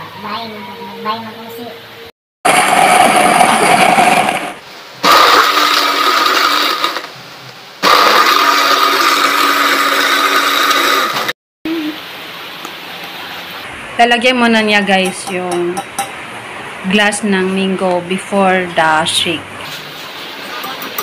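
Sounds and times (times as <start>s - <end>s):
blender running: 2.5s - 7.1s, 7.8s - 11.4s.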